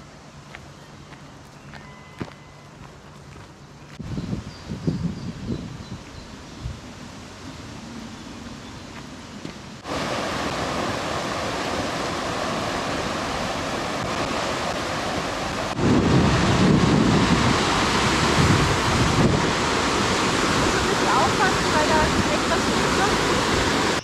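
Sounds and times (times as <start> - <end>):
river water rushing: 9.6 - 24.0.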